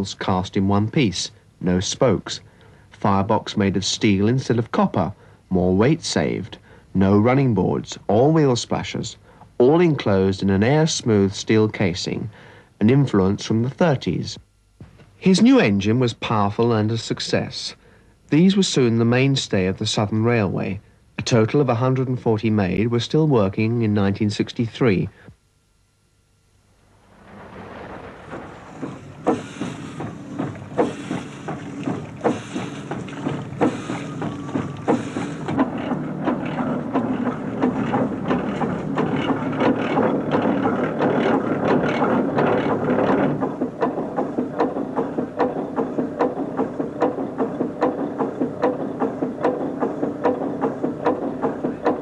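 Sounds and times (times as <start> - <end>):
steam locomotive exhaust beats: 26.8 - 52.0
steam hissing: 26.9 - 39.5.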